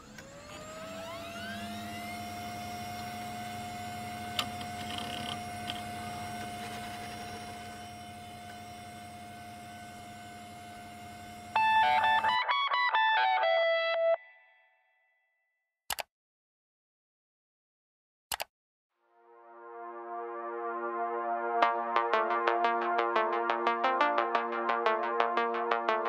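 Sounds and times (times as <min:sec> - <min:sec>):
computer fan whine and hum: 0:00.0 - 0:12.4
loud music: 0:11.6 - 0:14.2, 0:19.2 - 0:26.0
sharp click: 0:18.3 - 0:18.5.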